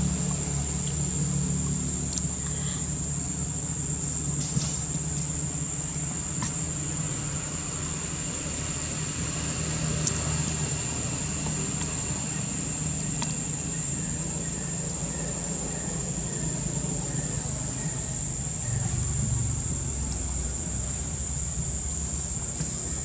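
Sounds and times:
insects droning: 0.0 - 23.0
low steady hum: 0.0 - 23.0.

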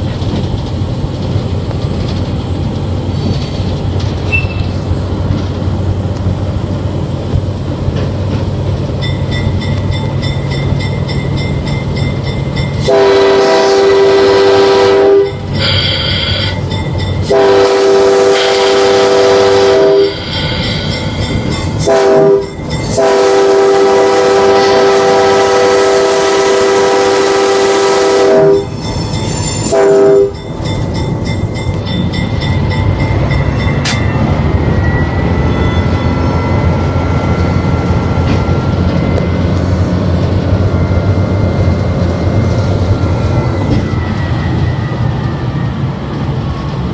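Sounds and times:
train rumbling: 0.0 - 46.9
faint squeal: 4.2 - 5.0, 34.8 - 39.9
locomotive air horn: 12.8 - 16.6, 17.2 - 20.8, 21.8 - 28.8, 29.6 - 30.4.

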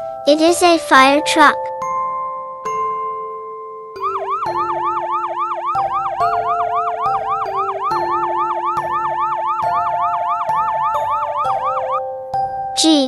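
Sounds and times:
children's music: 0.0 - 13.0
fire truck siren yelping: 4.0 - 12.1.

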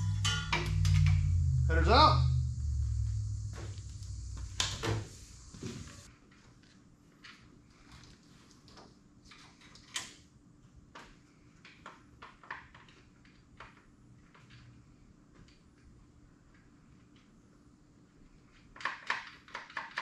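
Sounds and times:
low steady hum: 0.0 - 6.1.

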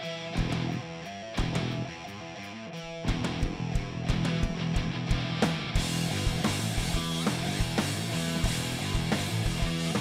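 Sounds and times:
rock band playing live: 0.0 - 10.0
strummed electric guitar: 0.0 - 10.0
loud drum and band hits: 3.1 - 10.0.

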